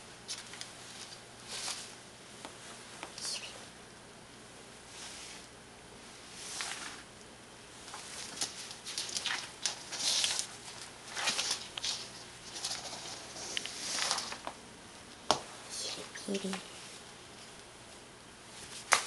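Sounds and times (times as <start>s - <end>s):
towel dragged across hard floor: 12.5s - 14.4s.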